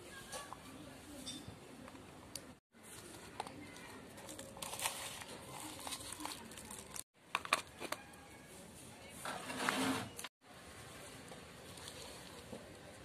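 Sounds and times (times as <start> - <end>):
plastic cup crinkling: 2.8 - 8.1
soil rustling: 11.0 - 13.0.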